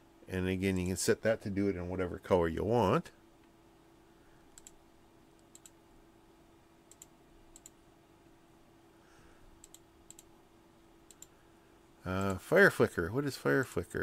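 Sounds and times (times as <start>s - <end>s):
low steady hum: 0.0s - 14.0s
computer mouse clicking: 4.5s - 4.8s, 5.4s - 5.8s, 6.9s - 7.8s, 9.6s - 10.3s, 11.1s - 11.4s.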